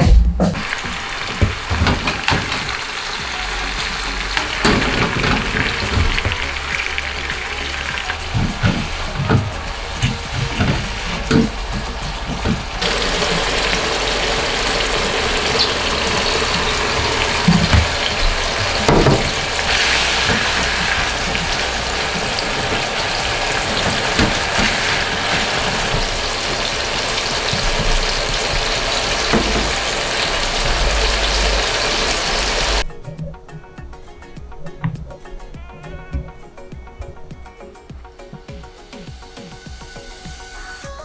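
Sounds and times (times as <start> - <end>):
food sizzling in oil in a pan: 0.6 - 32.8.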